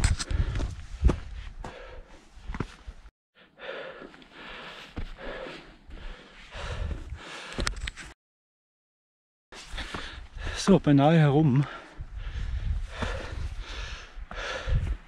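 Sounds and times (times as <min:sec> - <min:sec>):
person breathing heavily: 0:00.2 - 0:02.8, 0:03.4 - 0:07.7, 0:09.7 - 0:10.6, 0:11.6 - 0:15.0.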